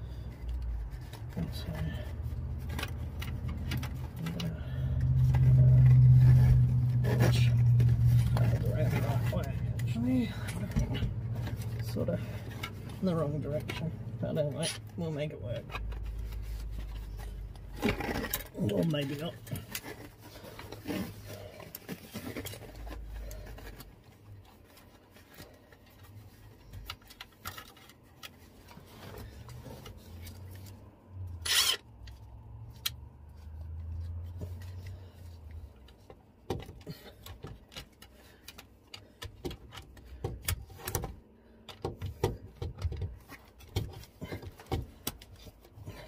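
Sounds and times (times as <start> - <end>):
clicks knocks and rubbing on pipes: 33.7 - 46.0.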